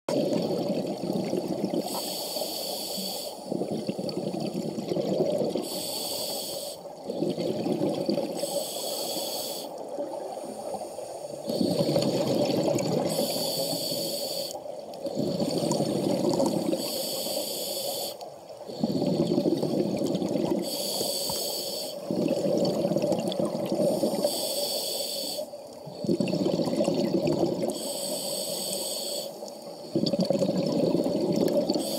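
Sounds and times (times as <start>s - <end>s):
exhaust bubbles underwater: 0.1s - 2.0s, 3.5s - 5.8s, 6.9s - 8.6s, 11.5s - 14.0s, 14.9s - 17.0s, 18.6s - 20.8s, 22.0s - 24.4s, 25.8s - 27.8s, 29.8s - 31.9s
regulator hissing inhalation: 1.8s - 3.6s, 5.6s - 7.4s, 8.4s - 9.8s, 13.0s - 20.0s, 20.6s - 22.2s, 23.7s - 25.6s, 27.7s - 29.9s.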